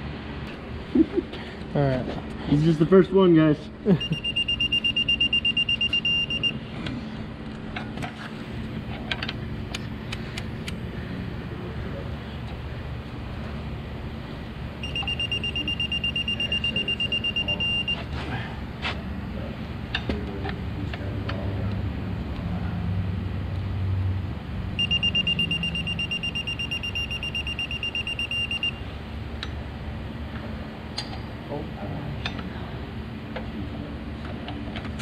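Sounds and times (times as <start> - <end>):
rapid high-pitched electronic beeping: 4.0 - 6.6, 14.8 - 18.0, 24.8 - 28.8.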